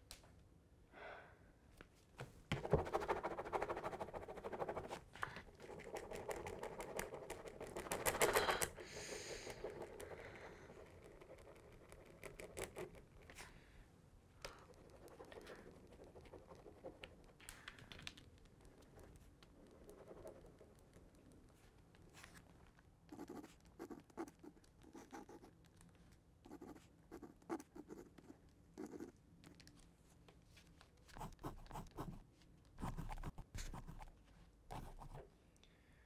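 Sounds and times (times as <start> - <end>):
ballpoint pen scratching on paper: 2.6 - 13.4, 14.7 - 17.4, 18.8 - 21.1, 23.1 - 25.6, 26.5 - 29.1, 31.1 - 32.2, 32.8 - 35.2.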